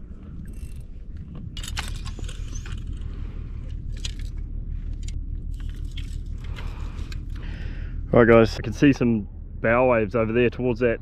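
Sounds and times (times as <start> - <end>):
steady low rumble: 0.0 - 11.0
fishing reel clicking: 0.4 - 0.8.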